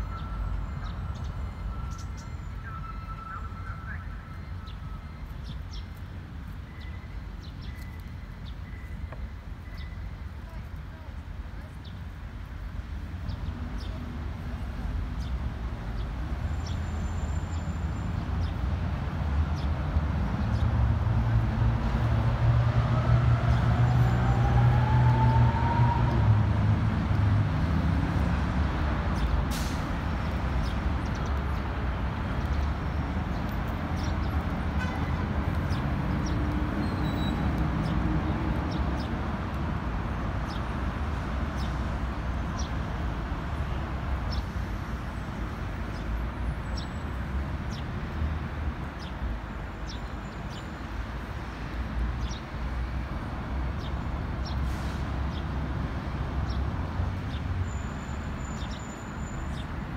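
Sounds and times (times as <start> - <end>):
city street traffic: 0.0 - 59.9.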